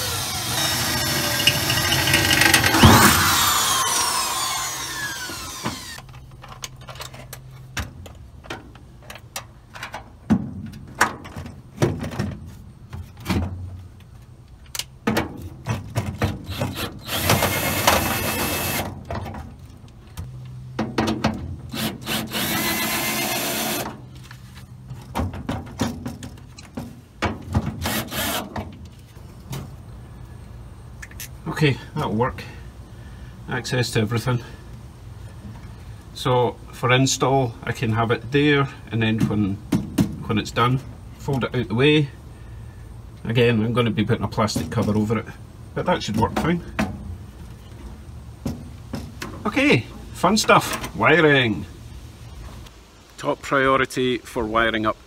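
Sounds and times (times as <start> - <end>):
cordless drill driving screws into metal: 0.0 - 6.1, 16.2 - 18.9, 21.7 - 24.0, 27.8 - 28.6.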